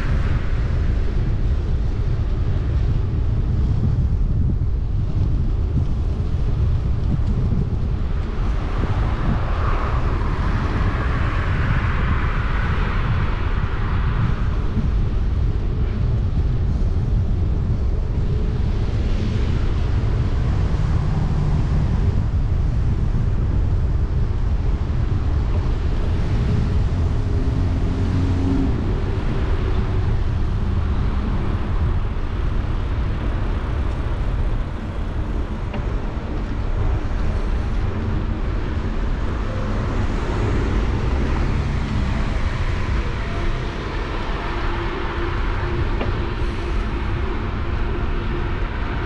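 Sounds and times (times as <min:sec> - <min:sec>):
wind rumble on microphone: 0:00.0 - 0:49.0
cars passing: 0:24.4 - 0:49.0.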